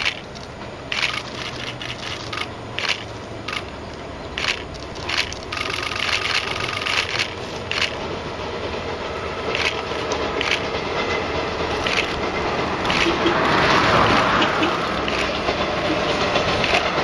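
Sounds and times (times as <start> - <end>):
sharp clicks: 0.0 - 8.0, 11.7 - 12.2, 12.8 - 13.3, 14.1 - 15.6, 16.5 - 17.0
steam train rumbling: 0.0 - 17.0.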